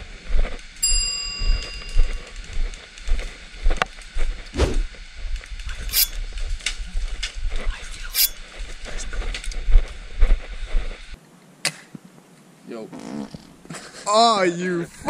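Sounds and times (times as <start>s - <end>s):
wind rumbling on microphone: 0.0s - 11.2s.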